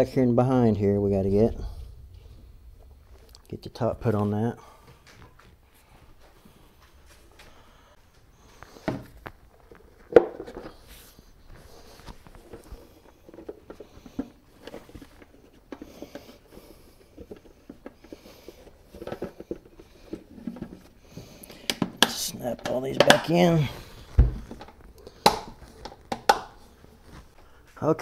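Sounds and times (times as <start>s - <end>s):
plastic parts clicking and rustling: 12.0s - 26.7s.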